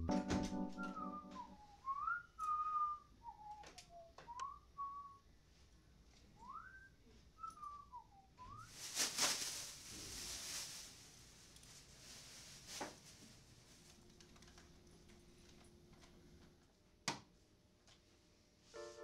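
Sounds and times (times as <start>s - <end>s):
person whistling a slow tune: 0.0s - 5.2s, 6.4s - 8.7s
plastic bag crinkling rustle: 8.6s - 14.6s.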